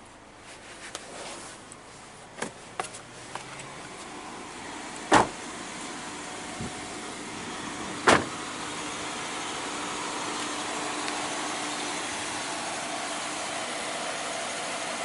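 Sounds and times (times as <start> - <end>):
outdoor background noise: 0.0 - 15.0
car door slamming: 5.0 - 5.5, 8.0 - 8.5.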